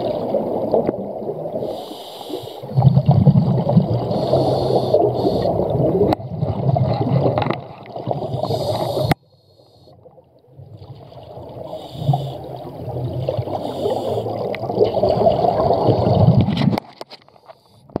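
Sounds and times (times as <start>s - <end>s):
regulator bubbles gurgling underwater: 0.0s - 18.0s
regulator hissing inhalations: 1.6s - 2.7s, 4.1s - 5.6s, 8.2s - 10.0s, 11.7s - 12.6s, 13.5s - 14.4s.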